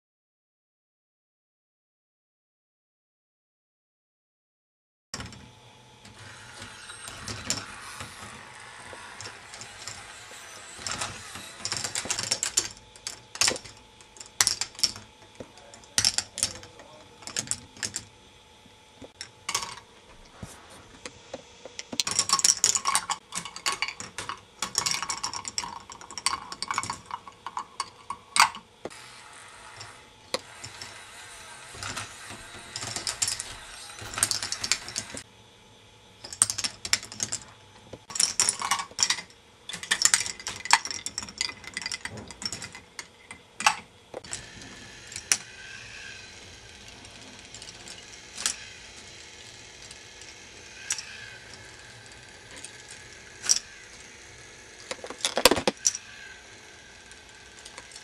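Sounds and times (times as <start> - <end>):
balls clattering through plastic tracks: 6.1 - 18.1, 19.0 - 19.9, 21.7 - 29.0, 29.7 - 35.2, 36.2 - 54.1, 54.7 - 58.0
steady rattle: 36.3 - 58.0.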